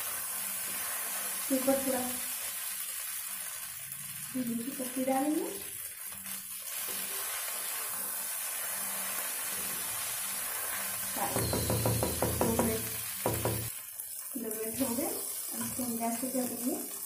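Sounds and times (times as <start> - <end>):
food sizzling in a pan: 0.0 - 17.0
wooden spatula knocking on pan: 11.2 - 13.7.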